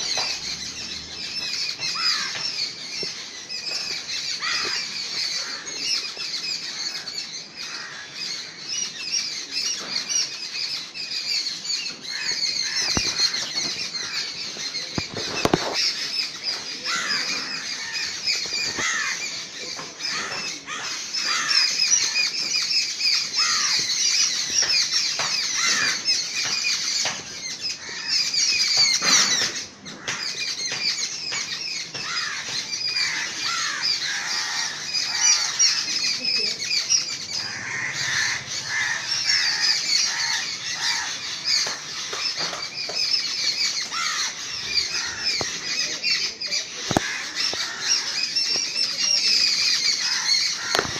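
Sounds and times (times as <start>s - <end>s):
crows calling harshly: 1.0s - 8.6s, 11.8s - 50.9s.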